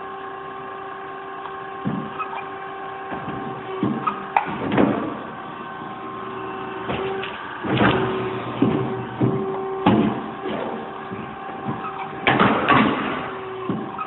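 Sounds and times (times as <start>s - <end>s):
machine hum: 0.0s - 14.0s
machine clanks and rattles: 3.1s - 5.5s, 6.8s - 14.0s.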